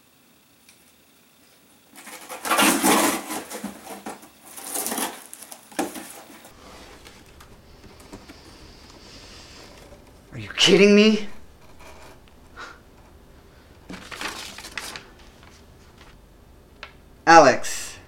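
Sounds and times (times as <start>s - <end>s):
packing tape ripping off cardboard: 1.9s - 8.5s, 13.9s - 15.6s
cardboard handling: 2.0s - 10.2s, 13.8s - 16.2s.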